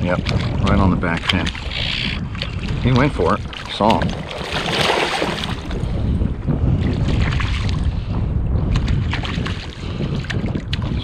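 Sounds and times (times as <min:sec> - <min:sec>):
wind buffeting microphone: 0:00.0 - 0:11.0
fish splashing at water surface: 0:03.5 - 0:05.9.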